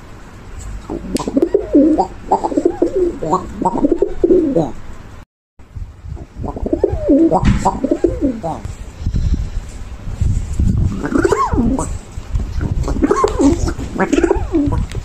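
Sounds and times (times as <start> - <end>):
pigeon cooing: 0.8 - 4.8, 6.4 - 8.8, 10.9 - 15.0.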